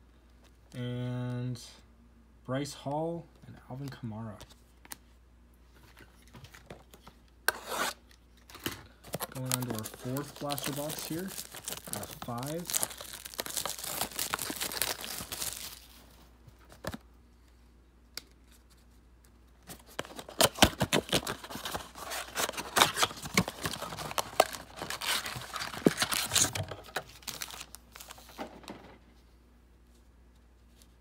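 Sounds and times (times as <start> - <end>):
plastic tearing: 9.1 - 16.0, 20.0 - 28.3
plastic wrapping crinkling: 9.1 - 16.2, 20.0 - 28.4.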